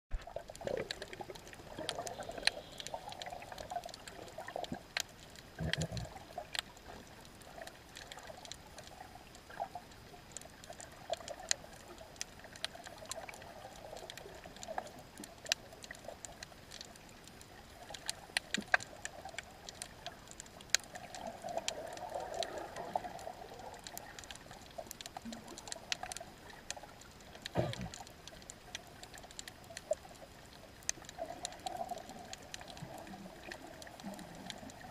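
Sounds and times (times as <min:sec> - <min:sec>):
sharp underwater clicks and crackles: 0:00.1 - 0:34.9
underwater water surge: 0:27.5 - 0:28.1.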